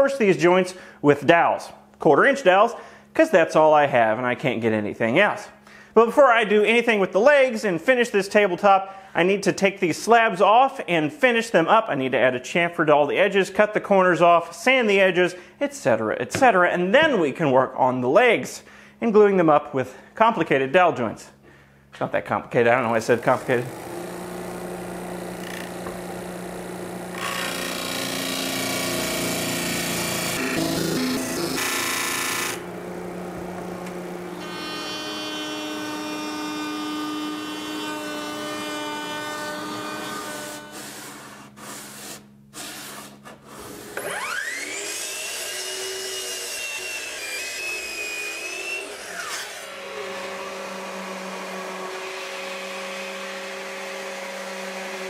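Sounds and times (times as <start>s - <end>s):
orbital sander running: 22.8s - 42.1s, 44.0s - 55.0s
wood grinding on sanding disc: 22.9s - 32.6s
disc sander motor humming: 22.9s - 36.2s
miter saw motor whining: 23.1s - 41.3s, 43.6s - 55.0s.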